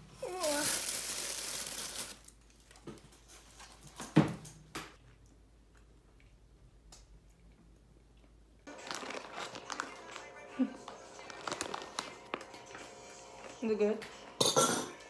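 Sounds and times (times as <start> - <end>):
packaging knocks and bumps: 8.7 - 10.0.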